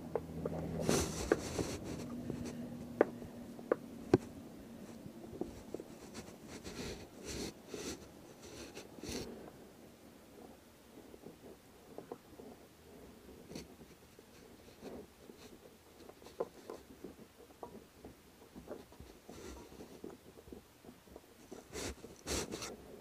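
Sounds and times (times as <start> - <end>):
metal scrapes: 0.7 - 2.6.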